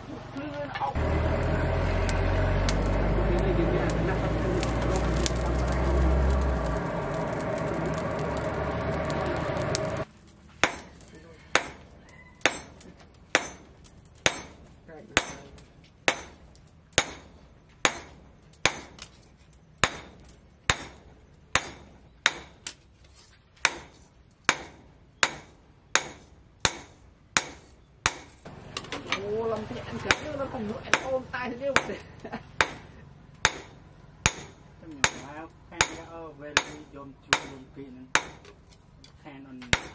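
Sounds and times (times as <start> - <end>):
forge fire rushing: 1.0 - 11.8
hammer striking steel on anvil: 10.6 - 11.8, 12.4 - 14.6, 15.2 - 16.4, 17.0 - 19.0, 19.8 - 22.7, 23.6 - 28.4, 30.0 - 31.2, 32.6 - 38.5, 39.6 - 39.9.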